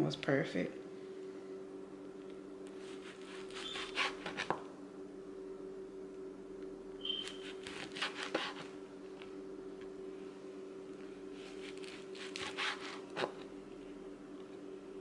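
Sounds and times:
steady low hum: 0:00.0 - 0:15.0
knife cutting on plastic board: 0:02.8 - 0:04.6, 0:07.1 - 0:08.7, 0:11.5 - 0:13.4.

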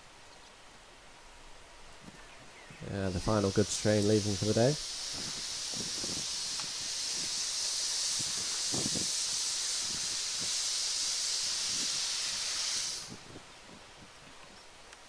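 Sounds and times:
steam hissing: 0:02.9 - 0:14.0.

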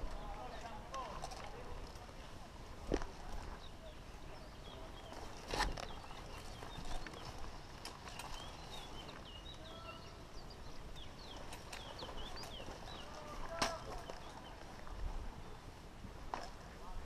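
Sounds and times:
small birds chirping: 0:03.0 - 0:15.8.

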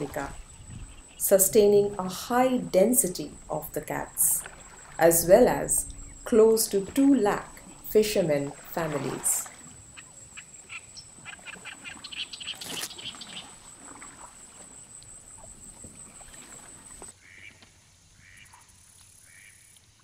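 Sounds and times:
reeds scraping along boat hull: 0:01.8 - 0:17.5.

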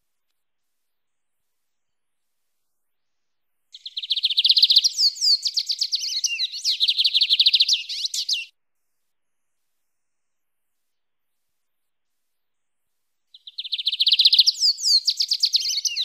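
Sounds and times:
bird singing high notes and whistles: 0:03.8 - 0:08.5, 0:13.4 - 0:16.0.

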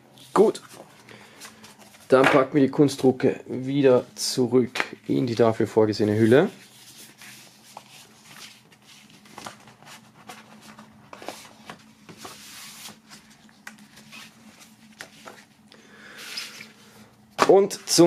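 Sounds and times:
paper photos sliding and rustling: 0:05.2 - 0:18.0.

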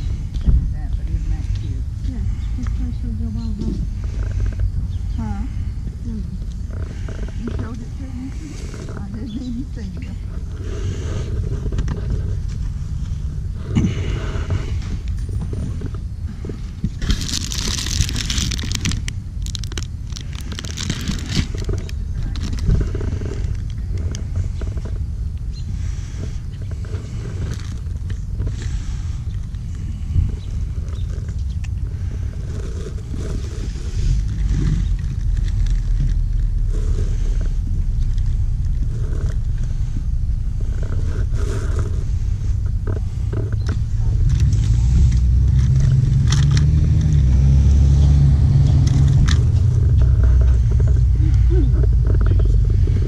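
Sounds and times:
car road and engine rumble: 0:00.0 - 0:53.0.

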